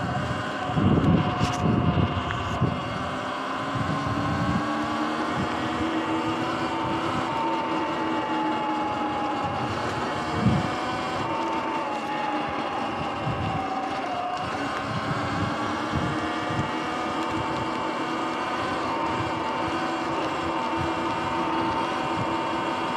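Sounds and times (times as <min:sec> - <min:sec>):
wind on microphone: 0:00.0 - 0:18.0
electric motorbike motor whine: 0:00.0 - 0:22.9.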